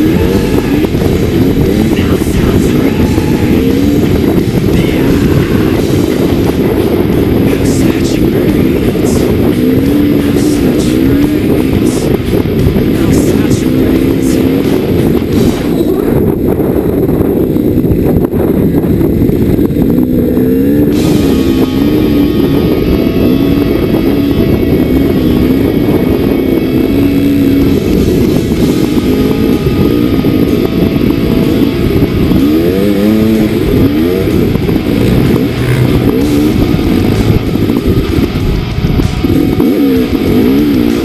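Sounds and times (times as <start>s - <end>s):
dirt bike engine revving: 0.0s - 41.0s
wind buffeting microphone: 0.0s - 41.0s.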